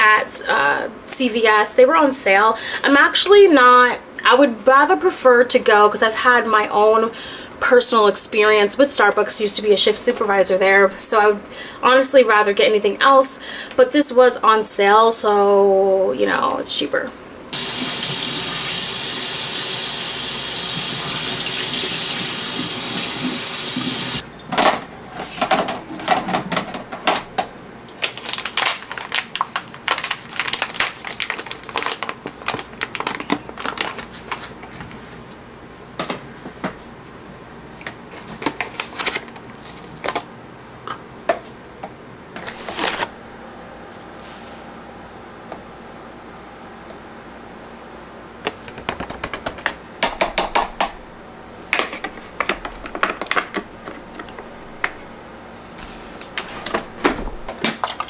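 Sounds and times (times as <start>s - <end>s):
kitchen tap running: 17.6s - 24.6s
coffee bag crinkling: 28.0s - 34.5s.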